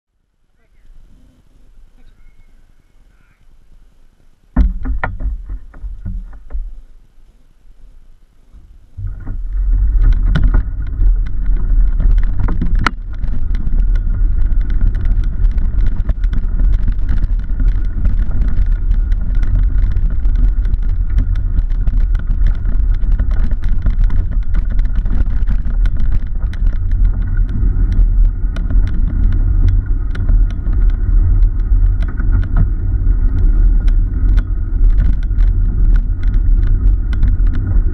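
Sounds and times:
bike tyre rumble on road: 0:00.9 - 0:37.9
bike knocks: 0:04.5 - 0:06.8, 0:09.0 - 0:37.9
small clicks and rattles: 0:09.0 - 0:37.9.

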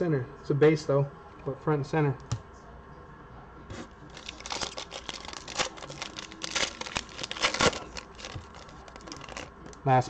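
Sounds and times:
foil wrapper crinkling and tearing: 0:04.1 - 0:09.8.

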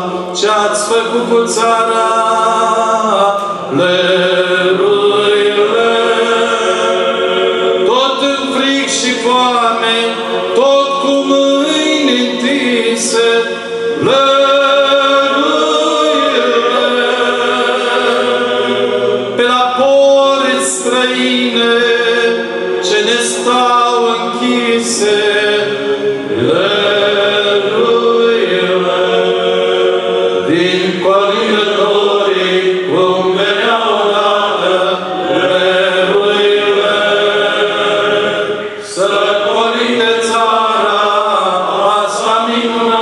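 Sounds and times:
male choir singing a cappella: 0:00.0 - 0:43.0.

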